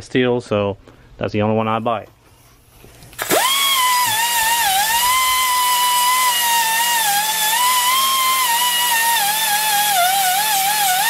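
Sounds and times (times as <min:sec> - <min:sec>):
die grinder whining: 0:03.2 - 0:11.0.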